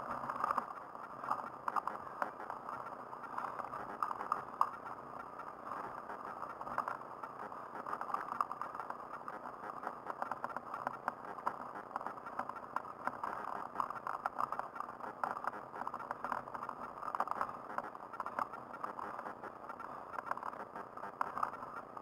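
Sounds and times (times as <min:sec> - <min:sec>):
small clicks and rattles: 0:00.0 - 0:22.0.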